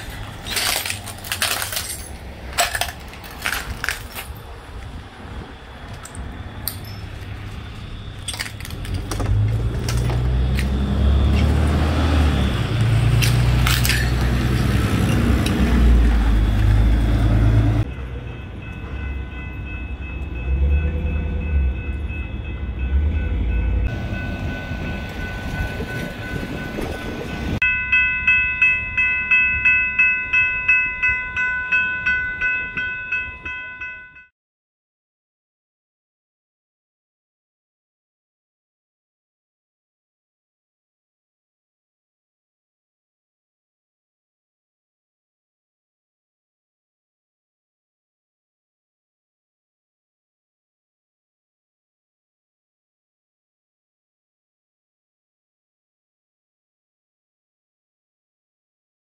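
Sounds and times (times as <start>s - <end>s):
high ringing tone: 5.5s - 8.7s, 17.8s - 34.3s
pulsing alarm bell ringing: 5.5s - 8.7s, 17.8s - 34.3s.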